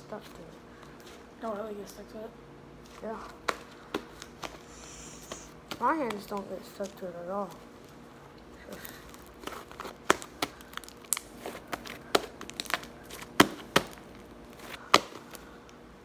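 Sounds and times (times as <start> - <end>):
slime popping and crackling: 9.2 - 14.2.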